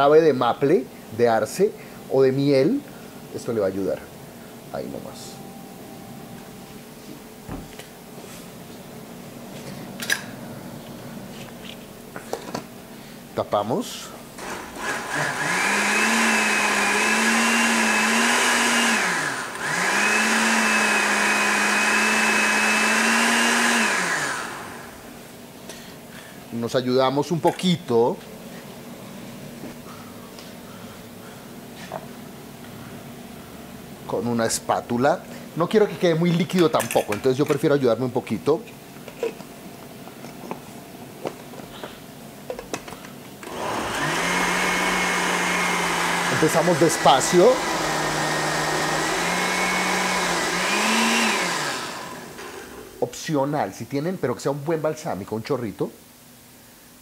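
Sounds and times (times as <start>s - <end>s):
blender motor whirring: 14.4s - 25.0s, 43.4s - 52.9s.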